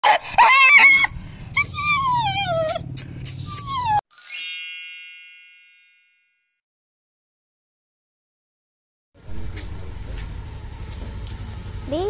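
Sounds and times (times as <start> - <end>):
dog whining: 0.0 - 4.1
bright chime ringing: 3.7 - 6.5.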